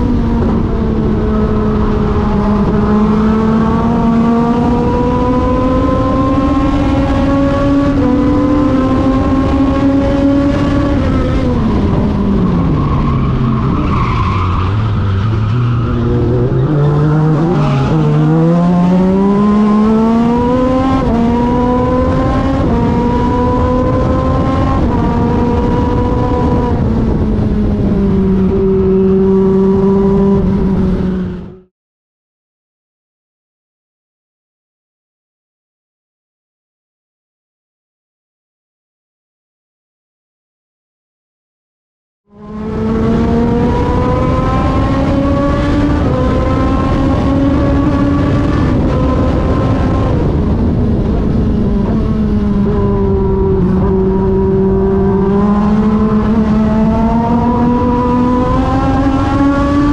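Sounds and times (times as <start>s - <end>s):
race car engine at full throttle: 0.0s - 31.7s, 42.3s - 59.9s.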